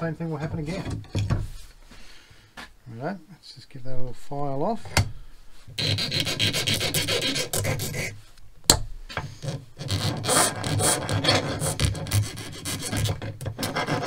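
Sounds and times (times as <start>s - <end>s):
file rasping on steel wire: 5.8s - 8.2s, 9.4s - 14.0s.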